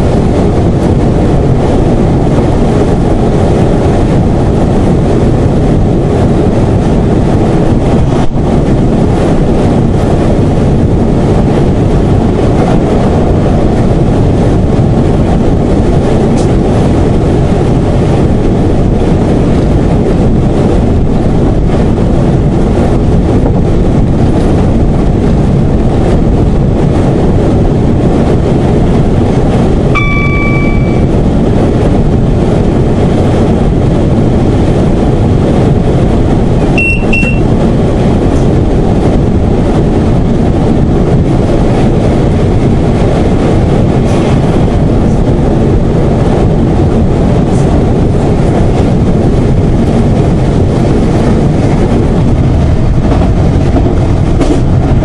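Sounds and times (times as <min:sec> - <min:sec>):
train wheels on rails: 0:00.0 - 0:22.3, 0:23.2 - 0:55.0
diesel train engine rumble: 0:00.0 - 0:55.0.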